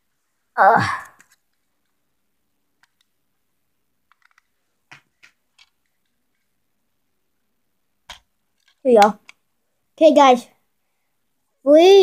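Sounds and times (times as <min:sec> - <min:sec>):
boy wordless vocal sound: 0:00.6 - 0:01.2.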